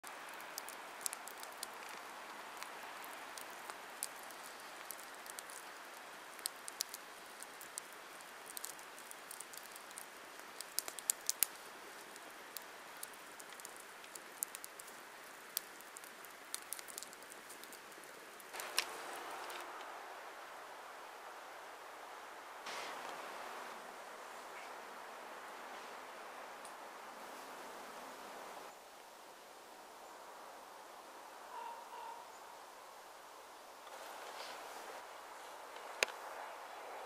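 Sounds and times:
campfire crackling and popping: 0:00.0 - 0:19.9, 0:35.0 - 0:36.4.

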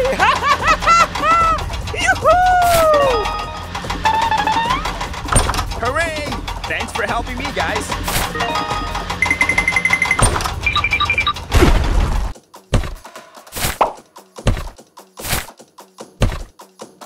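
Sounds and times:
music with electronic beeps: 0:03.0 - 0:05.5, 0:08.3 - 0:11.5.

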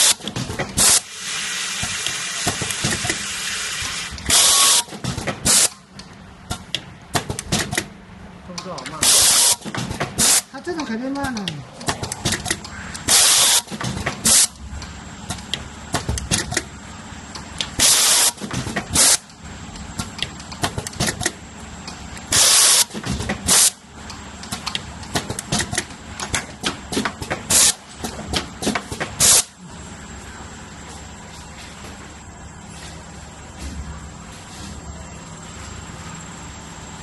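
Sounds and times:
low machine hum: 0:00.0 - 0:37.0
pneumatic air hisses: 0:00.8 - 0:05.8, 0:09.0 - 0:10.5, 0:13.0 - 0:14.6, 0:17.8 - 0:19.2, 0:22.3 - 0:23.8, 0:27.5 - 0:27.8, 0:29.2 - 0:29.6
mechanism clicking and clacking: 0:08.5 - 0:16.7, 0:17.3 - 0:22.2, 0:22.8 - 0:29.5.

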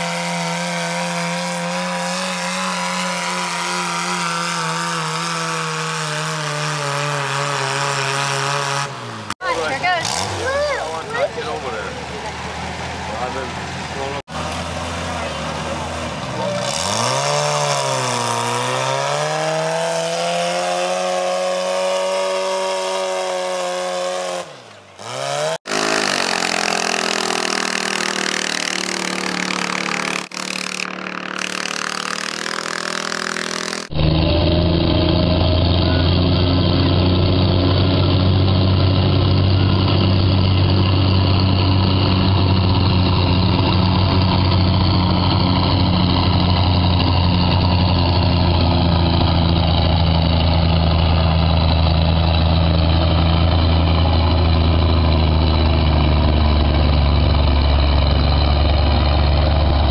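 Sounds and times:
farm tractor engine running hard: 0:00.0 - 0:59.9
garden tractor engine running flat out: 0:25.7 - 0:59.9.

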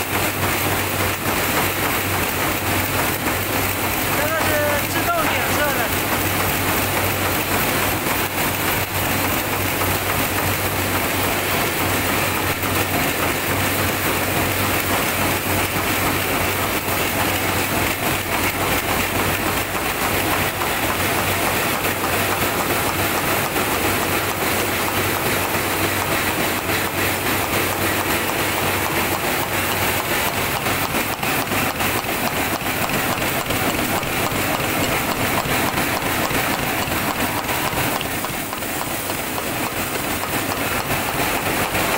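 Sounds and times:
machines metallic clatter: 0:00.0 - 0:41.9.

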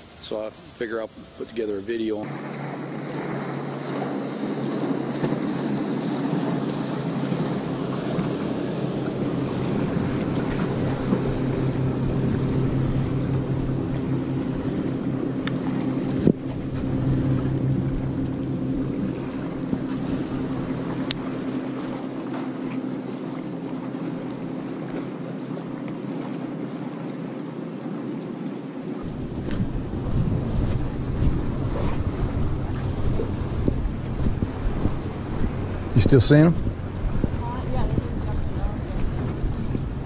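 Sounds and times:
water hissing: 0:00.0 - 0:02.2
motorboat engine droning: 0:00.0 - 0:40.0
wind: 0:00.0 - 0:40.0.

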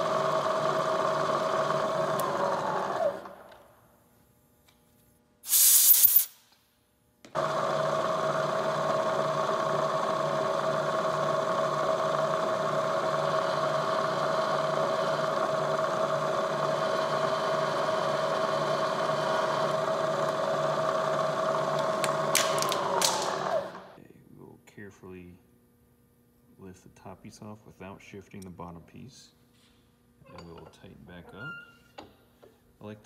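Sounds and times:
compressed air blow gun hissing: 0:05.4 - 0:06.4
drill boring into aluminum: 0:07.4 - 0:24.0
milling machine spindle whine: 0:07.4 - 0:24.0.

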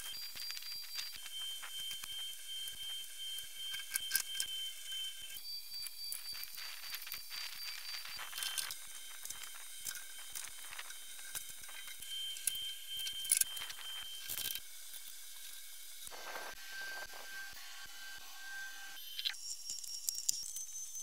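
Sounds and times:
steady hiss: 0:15.8 - 0:17.3.

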